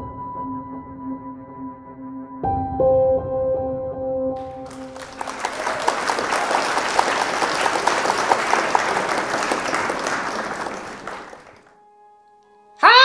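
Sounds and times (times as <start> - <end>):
audience applauding: 4.4 - 11.7.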